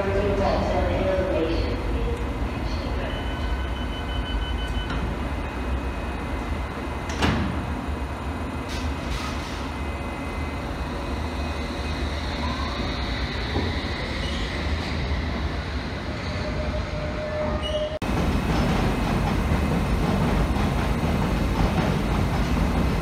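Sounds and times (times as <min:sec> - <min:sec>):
wheels rumbling on rails: 0:18.0 - 0:23.0.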